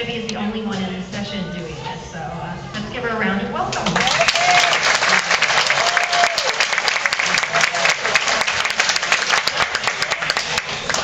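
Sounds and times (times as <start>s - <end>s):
audience clapping: 3.8s - 11.0s.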